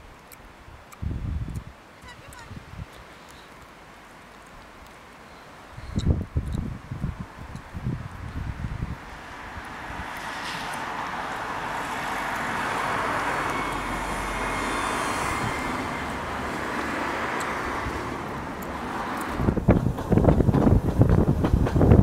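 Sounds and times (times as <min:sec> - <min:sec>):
wind on microphone: 0:00.0 - 0:03.1, 0:05.7 - 0:22.0
steam train rumbling: 0:10.5 - 0:22.0.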